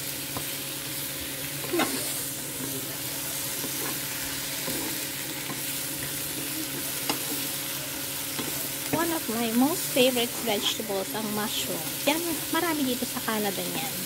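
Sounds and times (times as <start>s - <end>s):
mushrooms sizzling in frying pan: 0.0s - 14.0s
wooden spatula scraping pan: 3.6s - 6.5s.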